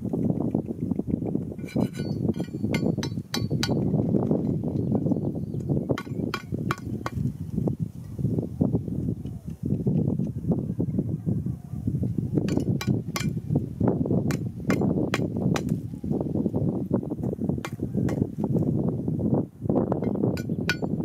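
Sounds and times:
metal pick striking stony dirt: 1.6s - 7.4s, 12.4s - 13.4s, 14.2s - 15.8s, 17.6s - 18.3s, 20.0s - 21.0s.

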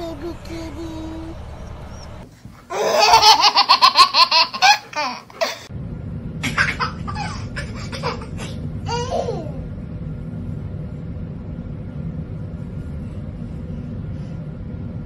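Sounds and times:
baby laughing: 2.7s - 5.7s.

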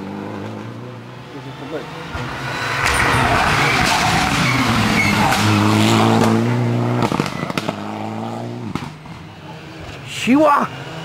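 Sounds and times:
rally car engine passing: 0.0s - 11.0s
exhaust cracks: 8.6s - 9.2s.

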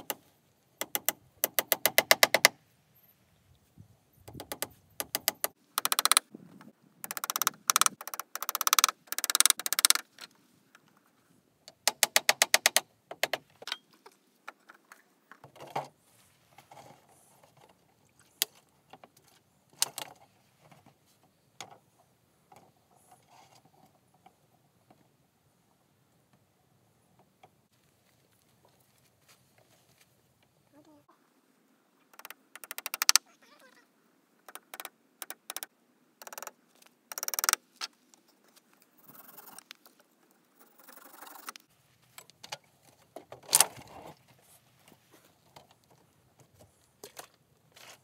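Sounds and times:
hand tool clicking: 4.3s - 6.2s, 7.0s - 10.0s, 11.8s - 13.4s, 32.2s - 33.2s, 37.1s - 37.6s.

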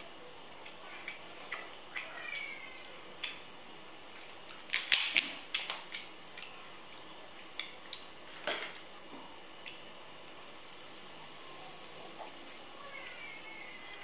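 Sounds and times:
crab shell cracking: 4.4s - 6.5s.

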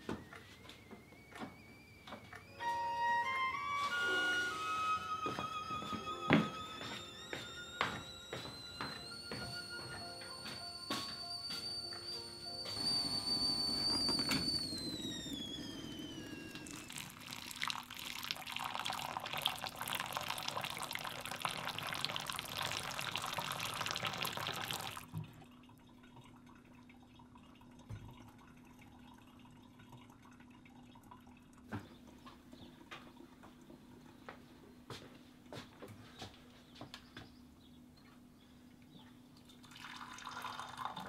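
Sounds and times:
high whistle falling in pitch: 0.0s - 17.2s
water pouring: 14.7s - 32.2s, 39.4s - 41.0s
faint dripping: 16.6s - 34.4s.

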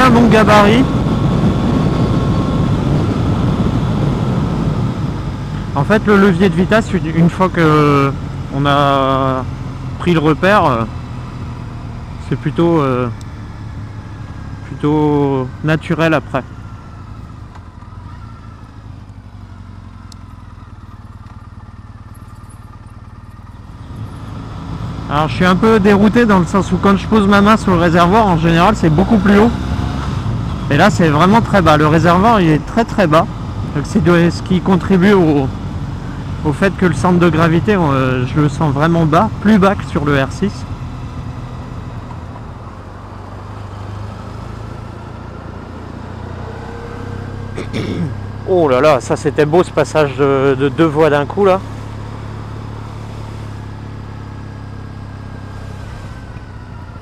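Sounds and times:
wind noise: 0.0s - 5.8s
motorcycle engine rumbling: 0.0s - 57.0s
road noise: 0.0s - 57.0s.

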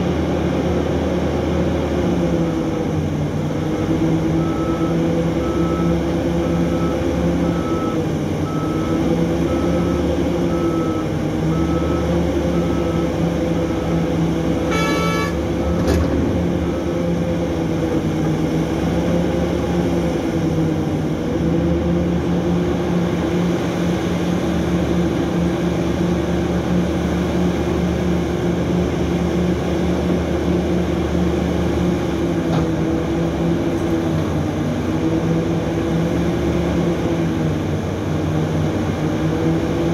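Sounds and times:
diesel engines running: 0.0s - 39.9s
reversing alarm beeping: 4.4s - 17.3s
horn blast: 14.6s - 15.6s.

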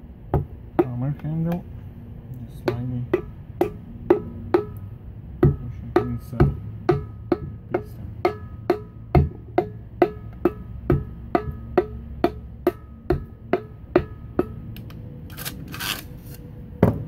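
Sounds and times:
hammer handle tapping piston: 0.4s - 1.7s
metallic ring of compressor band: 2.5s - 16.0s.

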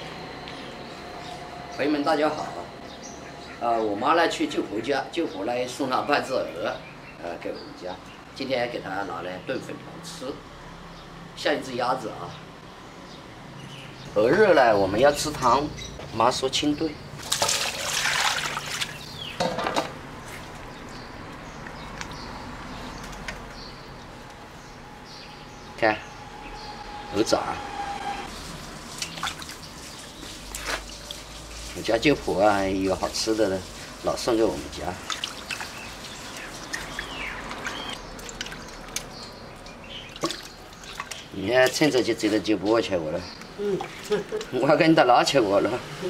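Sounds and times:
hands rinsing meat in water: 17.2s - 19.0s, 28.3s - 42.0s.

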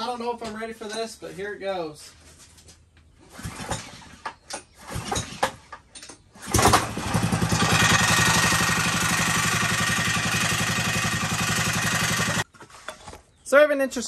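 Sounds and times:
small gas engine running: 6.4s - 12.4s.

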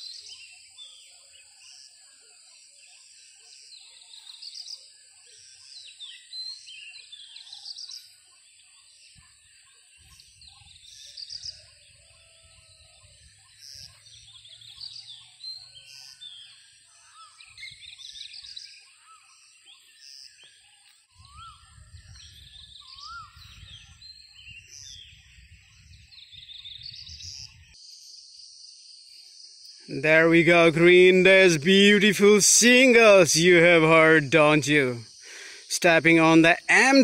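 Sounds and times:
whistled bird notes: 0.0s - 28.3s
birds chirping: 0.0s - 37.0s.

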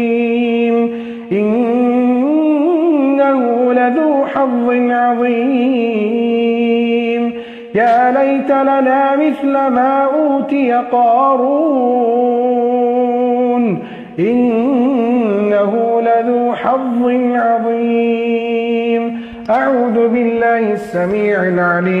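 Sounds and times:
person reciting melodically: 0.0s - 22.0s.

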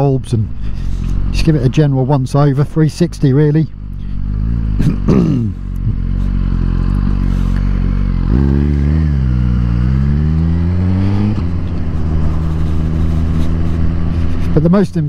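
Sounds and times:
motorcycle engine revving: 0.0s - 15.0s
wind noise: 10.4s - 14.6s.

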